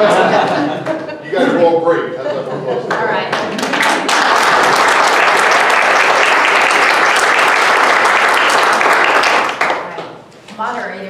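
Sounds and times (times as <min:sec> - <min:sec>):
people clapping: 0:00.3 - 0:01.1, 0:02.8 - 0:10.2.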